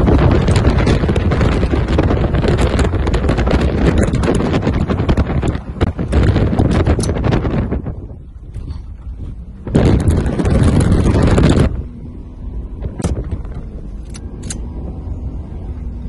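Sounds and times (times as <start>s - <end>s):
vehicle engine and tyres rumbling: 0.0s - 16.0s
sharp clicks: 13.0s - 14.7s.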